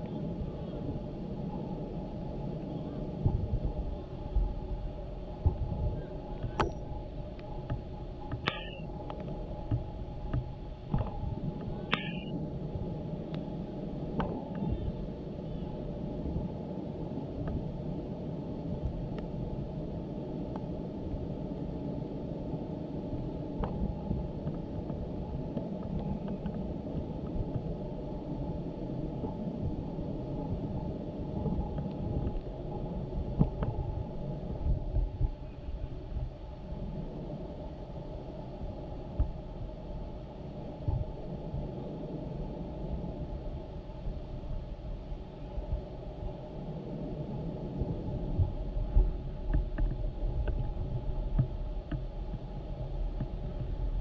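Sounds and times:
low rumble: 0.0s - 54.0s
high-pitched blips: 8.5s - 8.8s, 11.9s - 12.3s.

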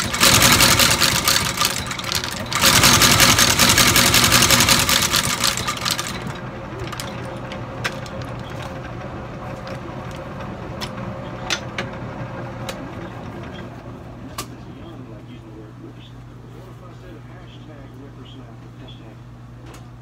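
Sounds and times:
stitching machine strokes: 0.0s - 10.2s
machine motor humming: 0.0s - 16.4s.

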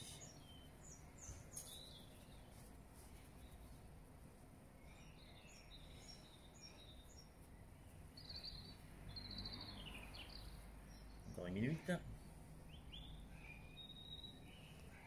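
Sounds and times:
outdoor background noise: 0.0s - 15.0s
bird chirps and trills: 4.8s - 15.0s.

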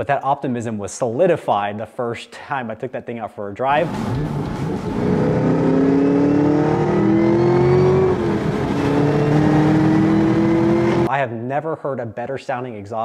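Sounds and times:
car engine accelerating: 3.8s - 11.1s.

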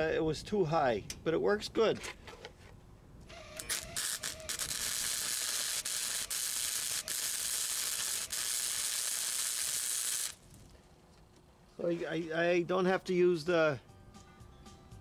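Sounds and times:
welding arc buzzing: 3.3s - 10.6s.

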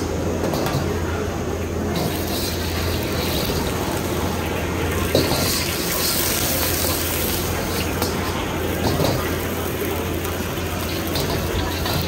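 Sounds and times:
gas burner roaring: 0.0s - 12.0s
ladle clanking against wok: 5.0s - 9.5s, 10.8s - 12.0s.

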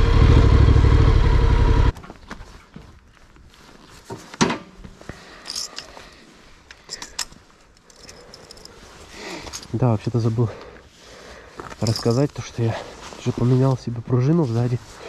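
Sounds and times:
motorcycle engine idling: 0.0s - 1.9s.

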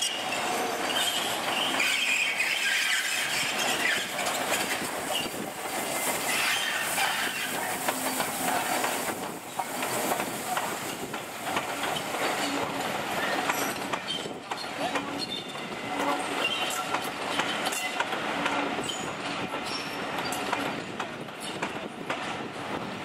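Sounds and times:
wheel flanges squealing: 0.0s - 5.4s
wheels clicking over rail joints: 0.0s - 22.5s
steam locomotive rolling past: 0.0s - 23.0s.

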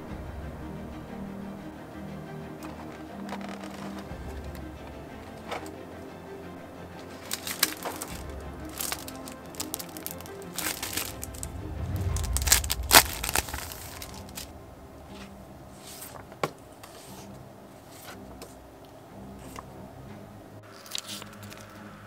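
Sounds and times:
paper rustling: 2.6s - 4.4s, 7.1s - 11.5s, 12.2s - 14.5s
page turns: 3.2s - 4.1s, 7.2s - 11.5s, 12.1s - 14.5s
plastic packaging crinkling: 7.2s - 11.5s, 12.2s - 14.5s.

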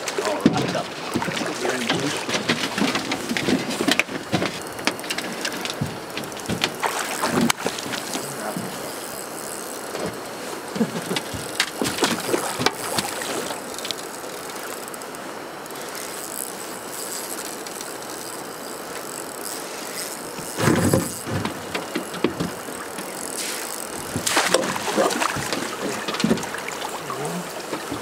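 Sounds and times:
water splashing beside boat: 0.0s - 28.0s
wind: 0.0s - 28.0s
river water rushing: 6.8s - 8.7s, 22.8s - 28.0s.

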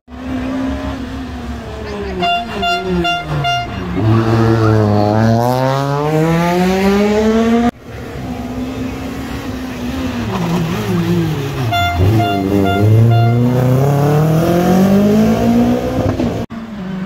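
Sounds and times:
rally car engine accelerating: 0.1s - 17.0s
short horn toot: 2.2s - 4.8s, 11.6s - 13.8s.

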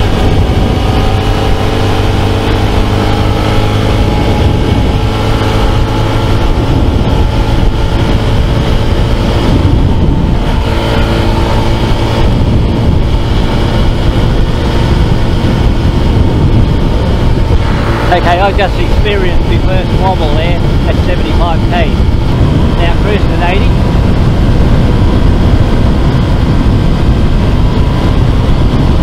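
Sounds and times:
motorcycle engine running: 0.0s - 29.0s
wind rush over microphone: 0.0s - 29.0s.

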